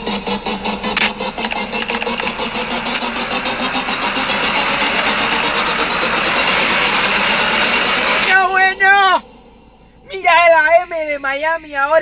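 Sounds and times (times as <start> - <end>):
rapid ticks: 0.2 - 8.4.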